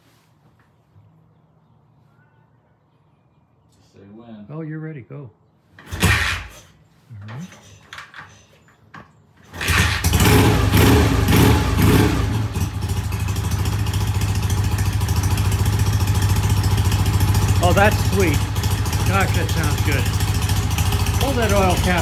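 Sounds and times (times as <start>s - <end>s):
motorcycle engine kick-started and idling: 5.8s - 6.6s, 9.4s - 22.0s.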